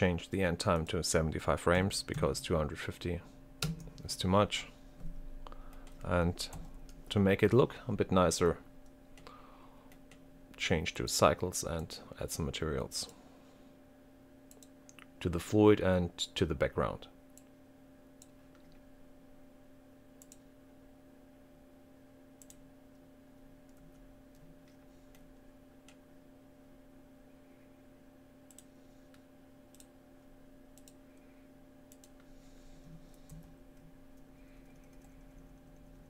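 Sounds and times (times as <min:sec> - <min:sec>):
low electrical hum: 0:00.0 - 0:36.0
computer mouse clicks: 0:14.5 - 0:15.1, 0:20.2 - 0:20.4, 0:22.4 - 0:22.6, 0:28.5 - 0:29.9, 0:30.8 - 0:31.0, 0:31.9 - 0:32.3.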